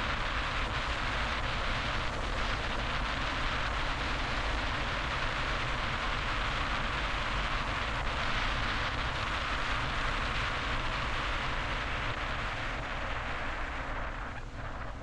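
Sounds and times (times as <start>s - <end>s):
car road and wind noise: 0.0s - 15.0s.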